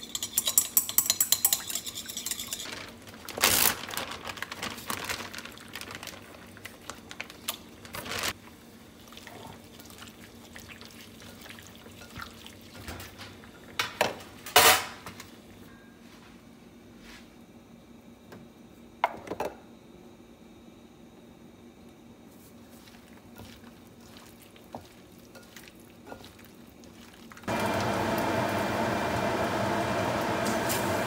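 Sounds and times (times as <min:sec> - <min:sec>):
wet squishing of meat in marinade: 0:22.7 - 0:27.5.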